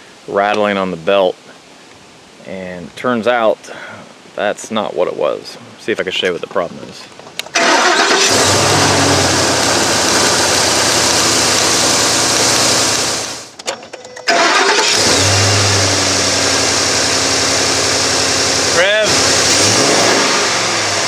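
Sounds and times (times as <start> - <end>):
engine running: 7.6 - 13.5, 14.3 - 21.0.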